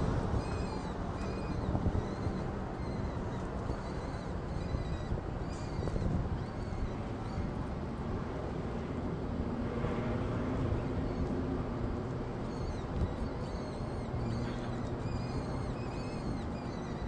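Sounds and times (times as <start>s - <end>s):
low rumbling noise with hiss: 0.0s - 17.0s.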